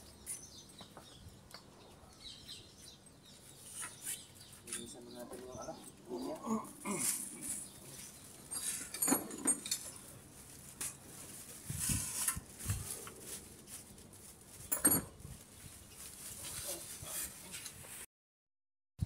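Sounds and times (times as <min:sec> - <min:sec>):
hand tools clinking on metal: 0:04.7 - 0:10.1, 0:14.7 - 0:15.2.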